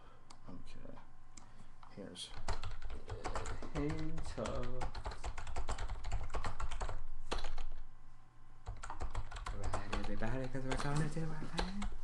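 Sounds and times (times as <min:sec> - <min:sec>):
person speaking: 0:01.8 - 0:05.4, 0:09.5 - 0:12.0.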